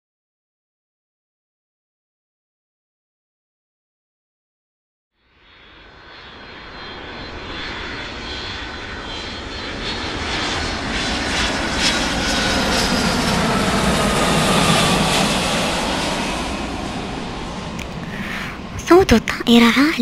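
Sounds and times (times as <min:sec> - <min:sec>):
jet airliner flying overhead: 0:05.2 - 0:20.0
jet engine whine: 0:05.2 - 0:20.0.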